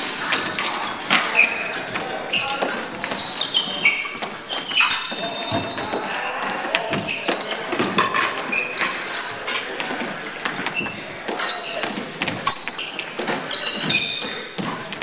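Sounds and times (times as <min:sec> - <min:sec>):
sneakers squeaking: 0:00.0 - 0:15.0.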